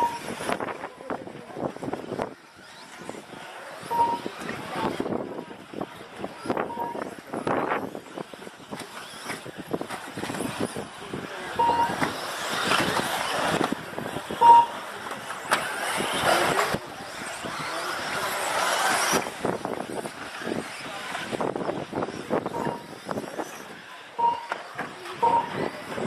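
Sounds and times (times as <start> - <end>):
short beeps: 0.0 - 0.4, 3.9 - 4.4, 6.6 - 7.1, 11.5 - 12.0, 14.4 - 14.9, 22.5 - 22.9, 24.2 - 24.6, 25.2 - 25.7
rc car motors: 0.0 - 26.0.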